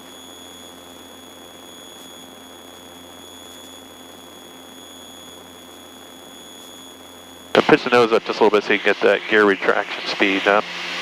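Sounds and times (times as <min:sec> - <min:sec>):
faint engine drone: 0:00.0 - 0:11.0
high-pitched whine: 0:00.0 - 0:11.0
intercom hiss: 0:07.6 - 0:11.0.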